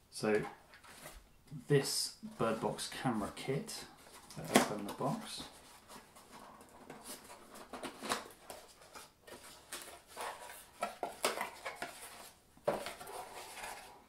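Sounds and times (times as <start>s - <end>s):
cardboard box rustling: 4.0s - 14.0s.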